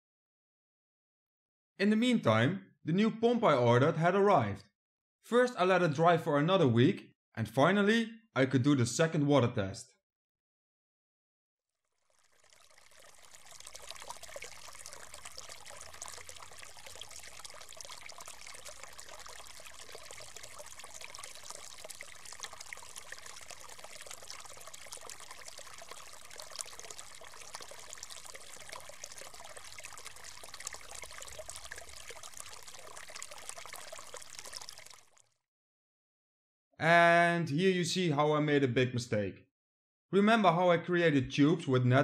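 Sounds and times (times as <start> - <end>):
water trickling and splashing: 12.0 - 35.4.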